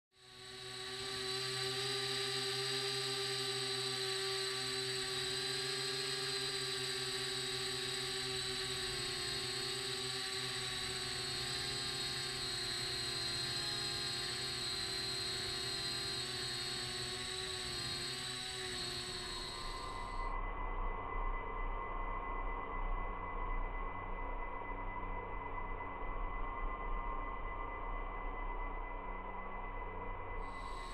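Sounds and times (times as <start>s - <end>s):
quadcopter motors whining: 0.1s - 20.4s, 30.3s - 30.9s.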